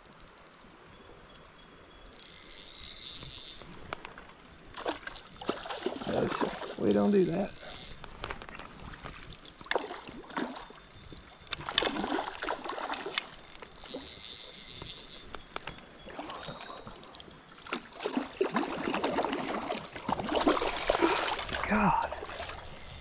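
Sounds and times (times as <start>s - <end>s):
fish splashing in water: 4.7s - 6.9s, 8.8s - 10.8s, 11.6s - 13.4s, 17.7s - 22.6s.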